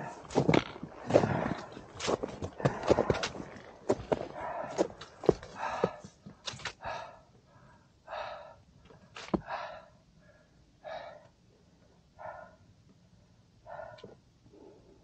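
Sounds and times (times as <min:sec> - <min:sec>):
footsteps on trail: 0:00.0 - 0:06.8
person breathing heavily: 0:00.0 - 0:11.4.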